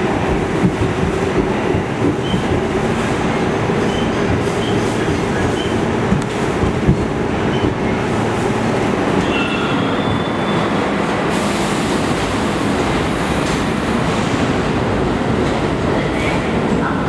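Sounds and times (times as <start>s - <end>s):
wheel clatter on rails: 0.0s - 8.0s
subway train rumbling: 0.0s - 17.0s
faint high wheel squeal: 9.2s - 10.7s.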